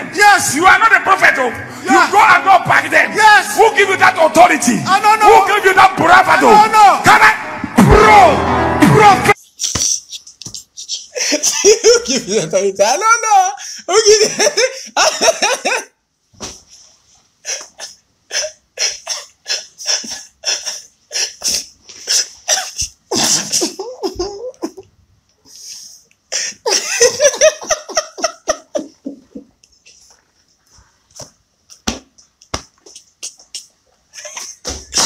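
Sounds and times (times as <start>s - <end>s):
men laughing hard: 11.0s - 12.5s, 13.9s - 15.9s, 22.3s - 24.9s, 26.4s - 29.6s, 34.1s - 35.0s.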